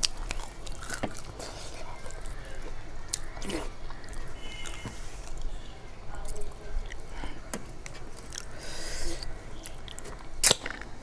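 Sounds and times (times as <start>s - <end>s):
wet chewing: 0.0s - 5.5s.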